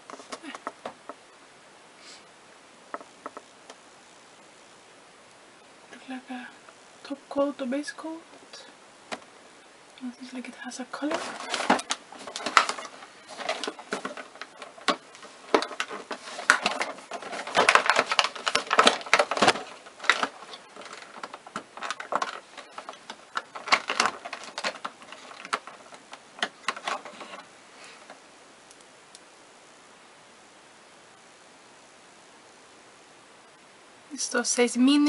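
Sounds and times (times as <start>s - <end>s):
packaging crinkling and rustling: 11.0s - 28.2s.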